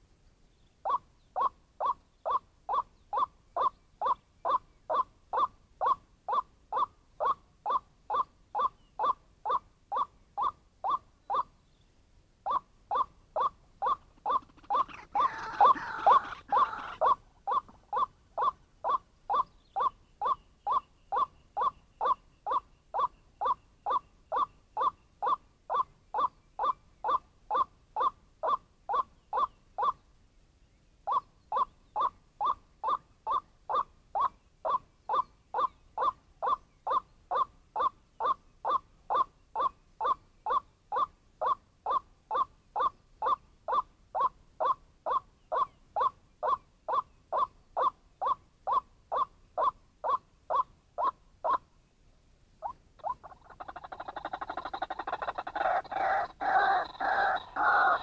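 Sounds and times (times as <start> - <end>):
waterhen calling: 12.4 - 30.0, 52.6 - 58.0.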